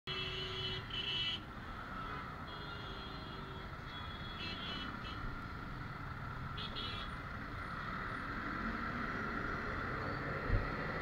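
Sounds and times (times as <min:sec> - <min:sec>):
road traffic noise: 0:00.1 - 0:11.0.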